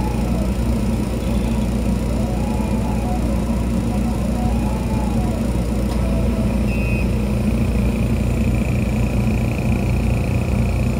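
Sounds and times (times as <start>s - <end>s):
faint rising and falling whine: 0.0s - 10.9s
laser engraver machine hum: 0.0s - 10.9s
thin high steady whine: 0.0s - 10.9s.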